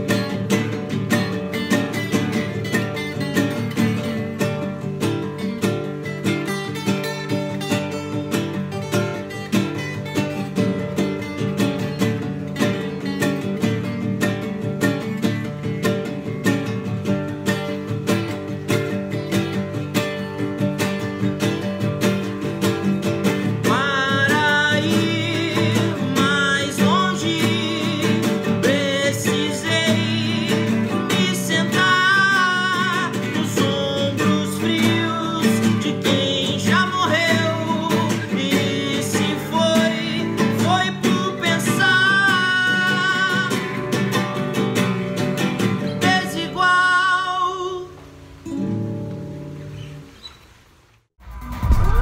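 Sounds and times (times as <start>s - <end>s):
acoustic guitars strummed and picked: 0.0s - 50.5s
man singing: 23.3s - 44.4s, 45.7s - 48.0s.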